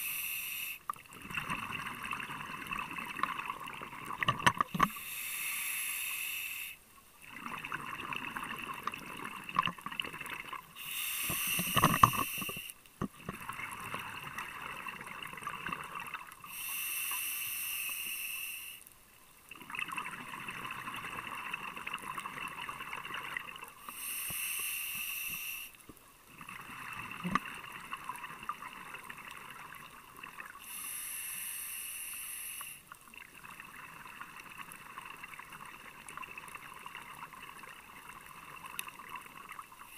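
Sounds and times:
regulator hiss on inhale: 0.0 - 1.0, 4.7 - 7.0, 10.7 - 12.9, 16.3 - 19.0, 23.8 - 25.9, 30.5 - 33.0
gurgling exhaled bubbles: 1.1 - 4.8, 7.2 - 10.7, 26.4 - 30.4.

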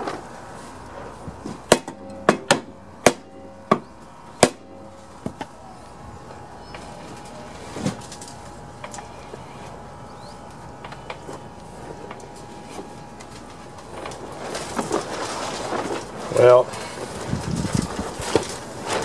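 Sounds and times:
mallet striking metal blade: 1.7 - 5.3.

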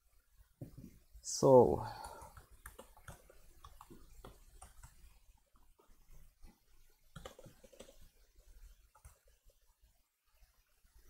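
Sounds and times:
laptop keyboard typing: 2.0 - 9.7.

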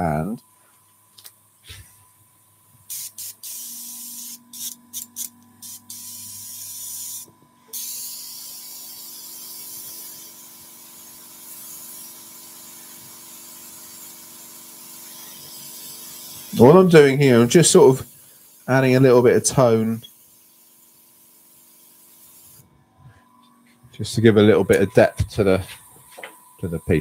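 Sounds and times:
airbrush spraying hiss: 2.8 - 22.6.

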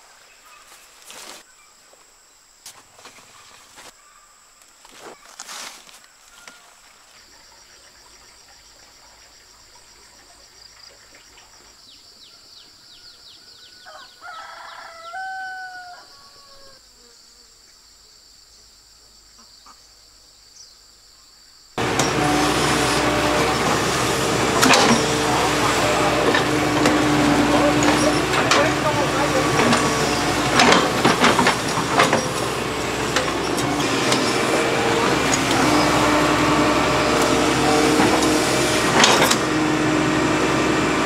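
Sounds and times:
insects droning: 0.0 - 41.0
rooster crowing: 12.9 - 16.9
excavator diesel engine: 21.8 - 41.0.

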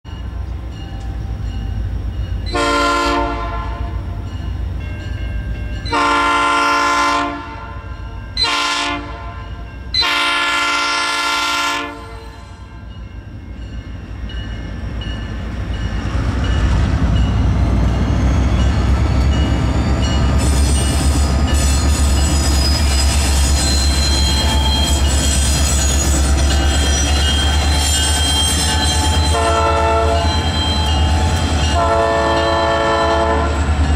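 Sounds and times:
diesel locomotive rumble: 0.1 - 33.9
train air horn blasts: 2.5 - 4.1, 5.9 - 12.8, 28.9 - 31.0, 31.7 - 33.7
high-pitched squealing: 18.2 - 31.8.

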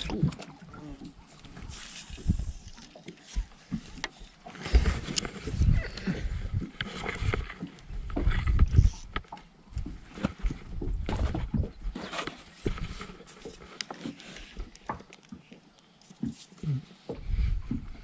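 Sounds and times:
gear knocking and thumping on boat: 3.3 - 15.5.

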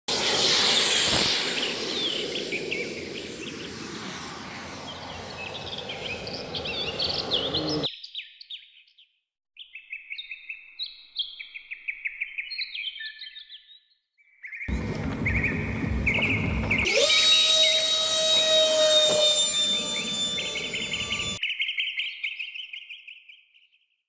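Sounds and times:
model jet rushing: 0.1 - 7.9, 14.7 - 21.4
bird chirps and trills: 0.2 - 9.0, 14.3 - 23.6.

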